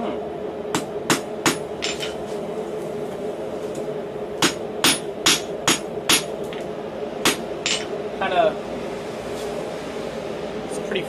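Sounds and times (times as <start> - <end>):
steady hum: 0.0 - 11.0
hammer striking on anvil: 4.4 - 6.3, 7.2 - 7.9.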